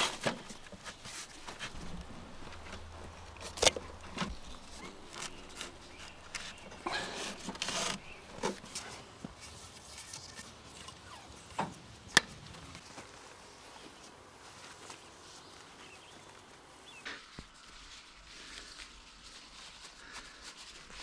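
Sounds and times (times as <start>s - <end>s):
rope rustling: 0.0s - 11.2s, 17.2s - 21.0s.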